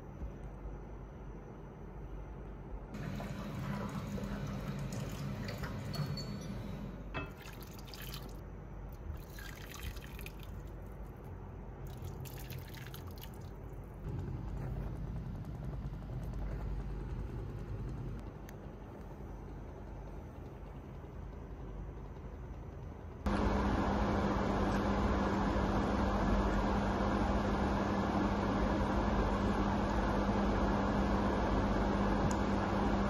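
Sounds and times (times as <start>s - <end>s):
water pouring into a pan: 9.2s - 10.6s.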